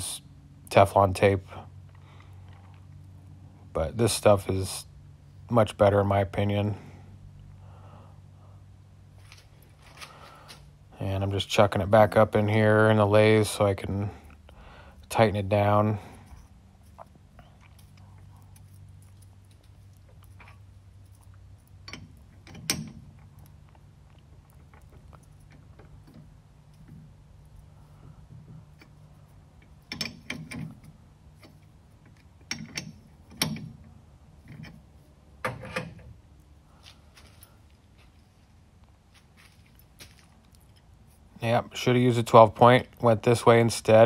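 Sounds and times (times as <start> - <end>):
metal chuck clicks and clanks: 21.8 - 23.3, 29.6 - 36.1.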